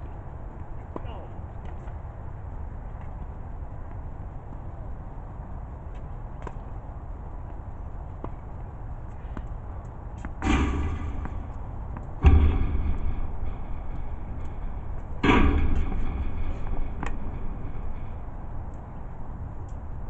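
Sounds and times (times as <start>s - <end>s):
tennis balls being struck: 7.5s - 15.8s, 16.5s - 19.8s.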